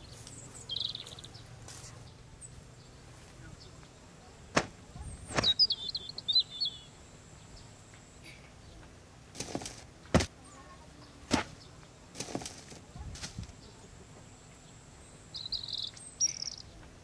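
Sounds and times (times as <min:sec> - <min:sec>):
bird chirping: 0:00.0 - 0:08.9, 0:12.8 - 0:16.9
short rustles: 0:09.4 - 0:10.3, 0:11.3 - 0:13.6.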